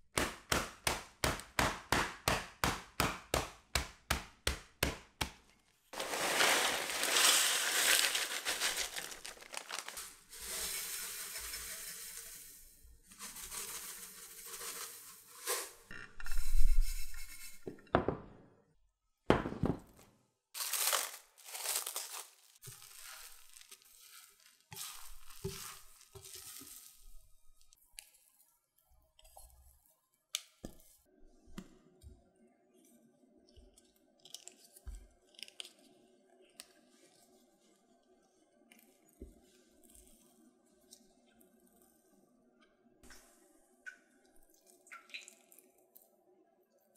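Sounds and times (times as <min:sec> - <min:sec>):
cling film rustling: 0:06.0 - 0:10.3, 0:20.6 - 0:27.0
plastic bag crinkling: 0:06.0 - 0:10.6, 0:20.6 - 0:27.2
dry noodles shaken in bag: 0:06.0 - 0:15.8, 0:20.6 - 0:27.1.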